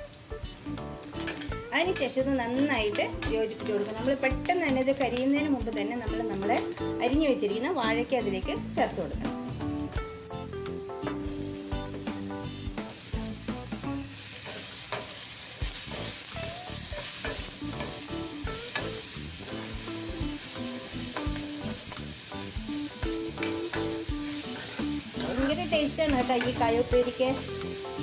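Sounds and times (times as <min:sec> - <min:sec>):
banana slices sizzling in oil: 0:00.0 - 0:28.0
steel spatula scraping pan: 0:24.3 - 0:26.6.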